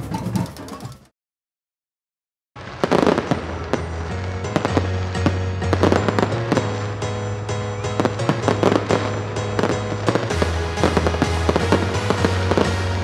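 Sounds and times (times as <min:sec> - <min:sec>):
fireworks bangs and crackles: 0:02.6 - 0:13.0
background music with bass line: 0:03.4 - 0:13.0.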